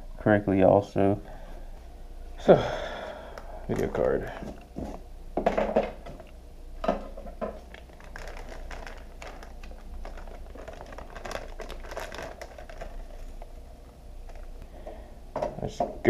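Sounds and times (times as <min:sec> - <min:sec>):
plastic bag crinkling: 0:03.7 - 0:05.0, 0:07.4 - 0:14.6.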